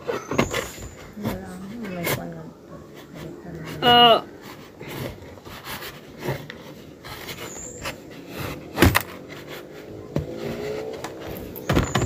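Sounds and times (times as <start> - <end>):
knife scraping plastic: 0.0 - 12.0.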